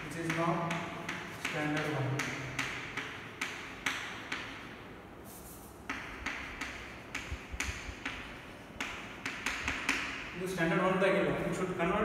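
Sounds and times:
chalk tapping on chalkboard: 0.0 - 10.4
chalk scratching: 5.2 - 8.2.

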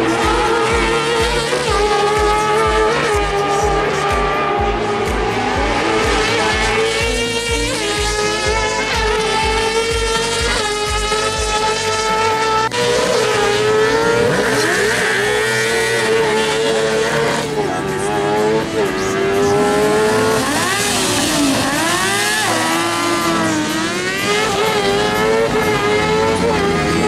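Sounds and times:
engines revving: 0.0 - 27.0.

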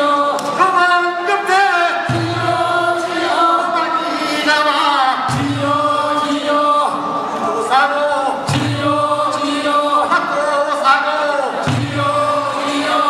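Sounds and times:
men singing work song: 0.0 - 13.0.

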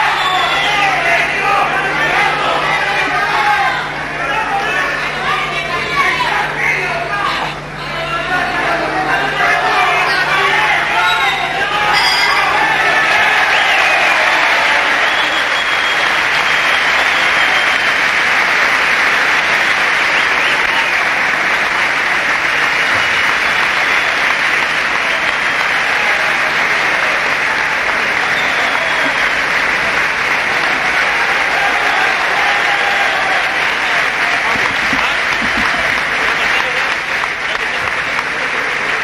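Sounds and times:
crowd cheering and shouting: 0.0 - 39.0
crowd clapping: 0.0 - 39.0.

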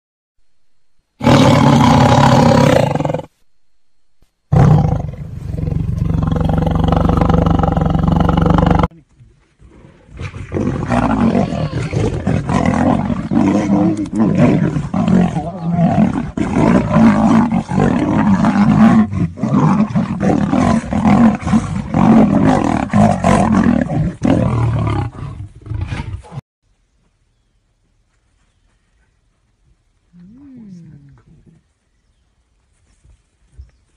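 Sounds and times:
big cats roaring and snarling: 1.2 - 3.3, 4.5 - 8.9, 9.6 - 26.4.

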